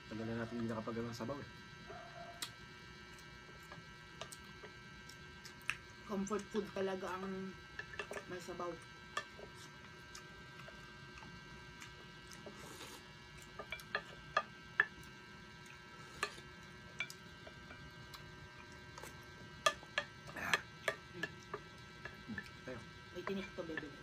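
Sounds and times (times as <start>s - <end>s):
faint electrical hum: 0.0s - 24.0s
wooden spoons tapping dishes: 7.8s - 8.4s, 13.5s - 15.1s, 19.0s - 22.6s, 23.2s - 24.0s.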